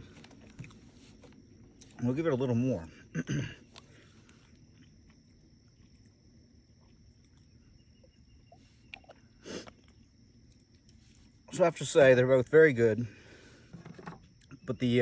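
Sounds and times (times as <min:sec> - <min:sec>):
soft rustle: 0:00.0 - 0:02.0, 0:10.6 - 0:11.5
faint steady high tone: 0:07.0 - 0:11.6.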